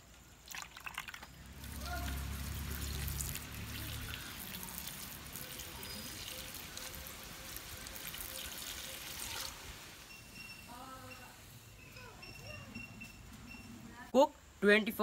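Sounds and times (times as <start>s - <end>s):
milk pouring and splashing: 0.3s - 10.1s.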